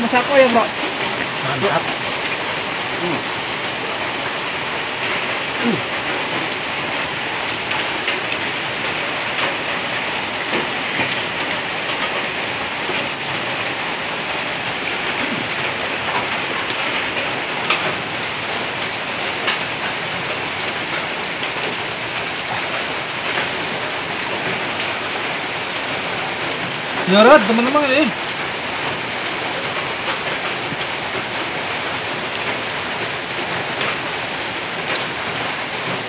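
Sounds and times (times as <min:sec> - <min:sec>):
rain on a metal roof: 0:00.0 - 0:36.0.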